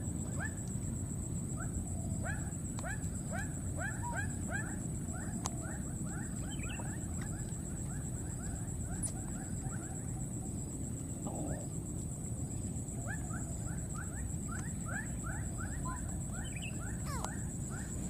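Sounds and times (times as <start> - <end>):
animal chirping: 14.0 - 18.0.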